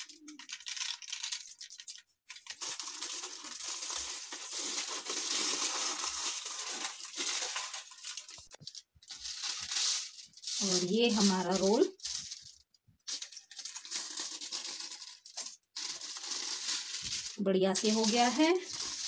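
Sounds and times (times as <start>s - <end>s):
aluminium foil crinkling: 0.0s - 19.0s.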